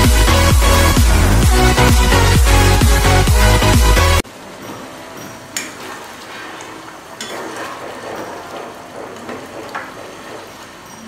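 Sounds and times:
sloshing and bubbling gravy: 5.8s - 11.0s.

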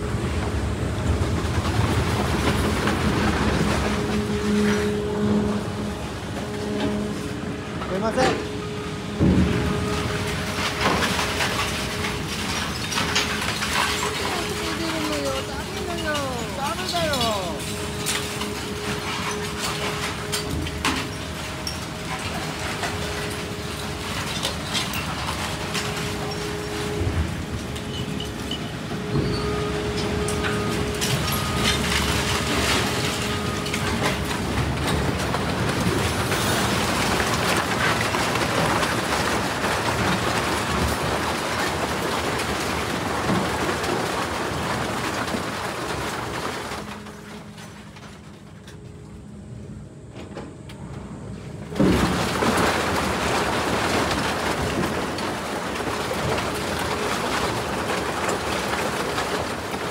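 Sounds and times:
scrap metal shredder clattering: 9.2s - 48.8s, 51.7s - 59.9s.

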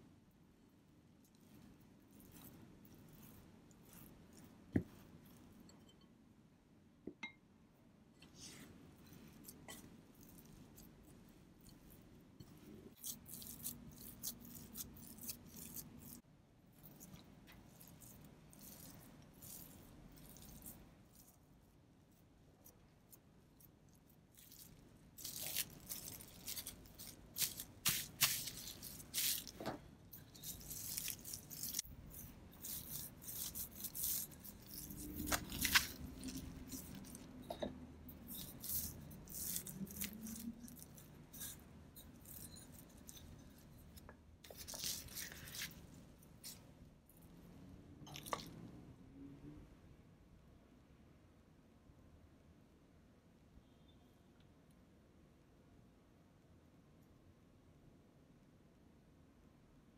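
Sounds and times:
hands kneading dough: 0.0s - 6.1s, 8.2s - 48.7s
cling wrap crinkling: 24.4s - 37.3s.

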